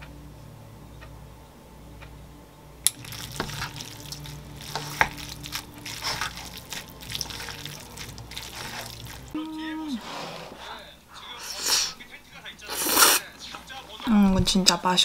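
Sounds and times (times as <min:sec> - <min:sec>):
wet sticky noodle squelching: 0:02.9 - 0:09.4.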